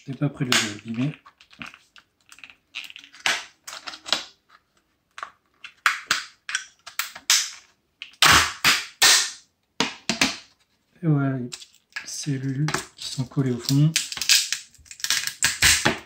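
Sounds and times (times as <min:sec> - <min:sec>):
plastic casing cracking apart: 0:13.7 - 0:16.0.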